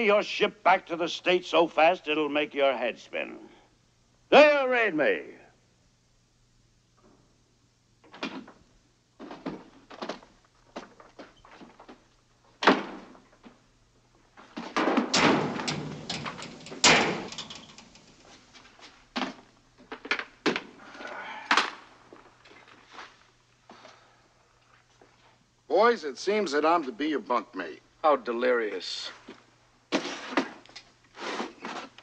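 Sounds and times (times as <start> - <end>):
knocks and thumps: 14.6 - 18.0
door sounds: 14.6 - 18.4
low steady hum: 15.1 - 29.9.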